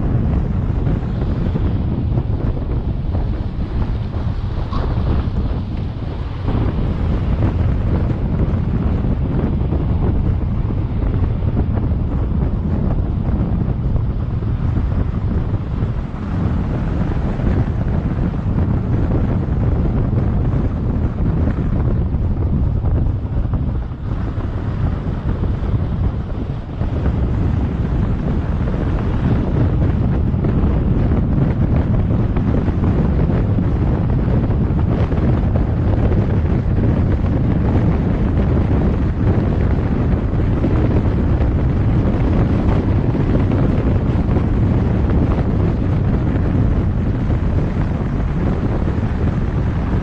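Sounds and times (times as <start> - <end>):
road and engine rumble: 0.0 - 50.0
wind rushing over microphone: 0.0 - 50.0.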